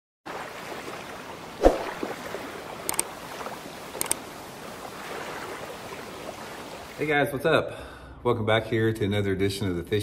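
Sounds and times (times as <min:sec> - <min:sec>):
water lapping: 0:00.3 - 0:07.1.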